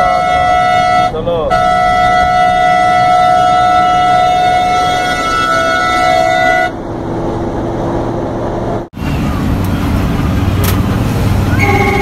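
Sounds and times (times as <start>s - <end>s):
bus horn blast: 0.0s - 6.8s, 11.5s - 12.0s
bus engine and road noise: 0.0s - 12.0s.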